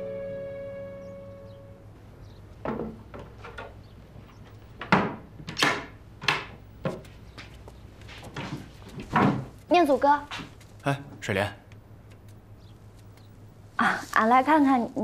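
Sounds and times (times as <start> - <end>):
soft background music: 0.0 - 2.0
wooden knocks and clunks: 2.6 - 3.8, 4.8 - 7.5, 8.2 - 9.6.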